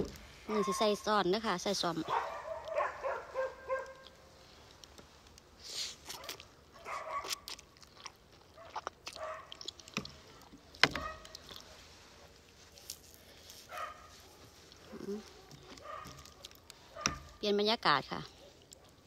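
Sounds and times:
wet chewing smacks: 2.6s - 17.4s, 18.2s - 19.0s
noodles slurped: 7.2s - 12.0s.

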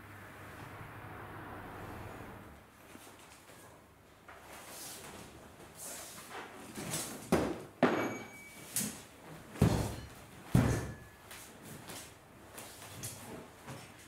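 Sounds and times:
brief metallic ring: 8.0s - 8.6s.

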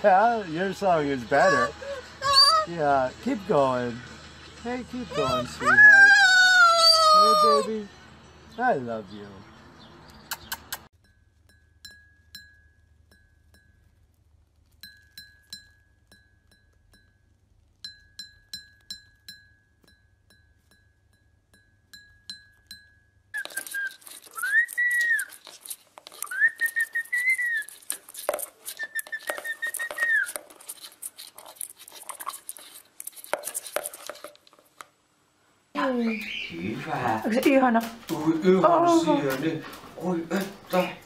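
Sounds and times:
bird whistling: 1.4s - 2.7s, 23.4s - 25.4s, 26.2s - 27.8s, 28.7s - 30.4s, 35.9s - 36.6s
beak tapping porcelain cup: 17.8s - 34.4s
parrot rattling toys in plastic bucket: 23.4s - 34.8s.

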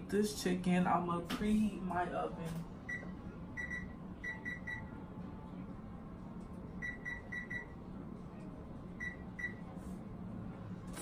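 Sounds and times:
oven keypad beeps: 2.9s - 4.9s, 6.8s - 7.8s, 9.0s - 9.6s.

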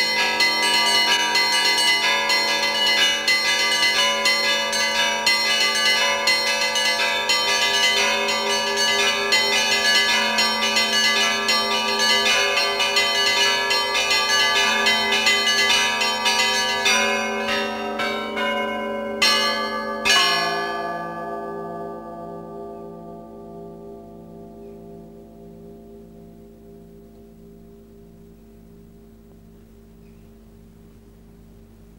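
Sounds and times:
peal of small church bells: 0.0s - 28.9s
steady low hum: 23.6s - 31.9s.

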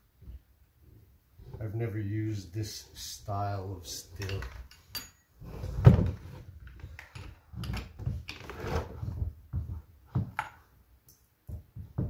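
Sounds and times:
metal parts knocking and scraping: 3.8s - 5.3s.

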